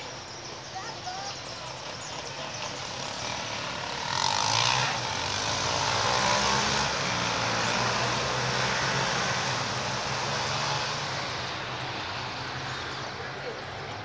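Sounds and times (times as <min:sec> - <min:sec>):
diesel locomotive engines humming: 0:00.0 - 0:05.4.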